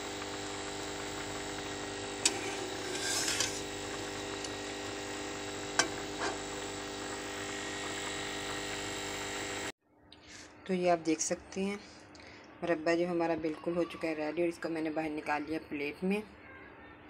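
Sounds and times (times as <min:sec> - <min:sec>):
steady hum: 0:00.0 - 0:09.7.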